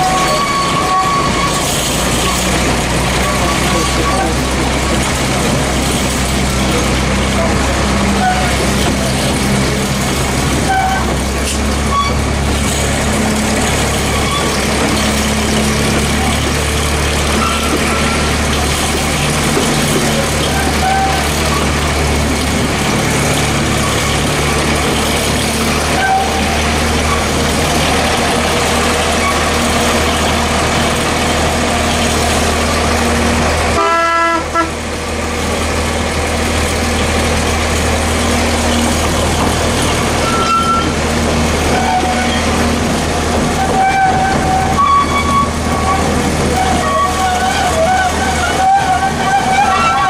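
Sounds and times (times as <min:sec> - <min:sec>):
locomotive horn toot: 0:00.0 - 0:02.5, 0:07.3 - 0:08.7, 0:10.6 - 0:12.4, 0:17.3 - 0:18.5, 0:20.4 - 0:21.8, 0:25.8 - 0:27.3, 0:33.7 - 0:34.9, 0:40.2 - 0:41.0, 0:41.7 - 0:42.6, 0:43.6 - 0:50.0
diesel locomotive engine drone: 0:00.0 - 0:50.0.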